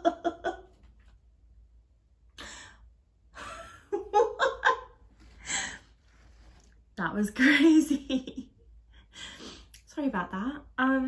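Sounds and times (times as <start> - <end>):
woman laughing: 0.0 - 0.8, 3.4 - 5.0.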